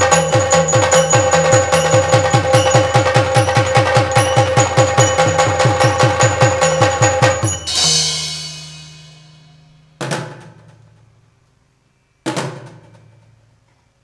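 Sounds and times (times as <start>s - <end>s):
drums and cymbals playing: 0.0s - 10.6s
cymbal crash: 0.0s - 10.7s.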